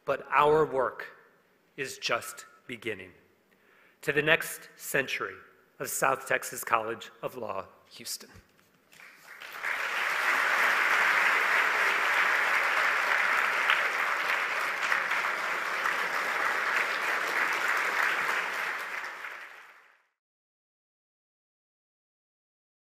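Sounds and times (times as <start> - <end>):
audience applauding: 9.0 - 20.1.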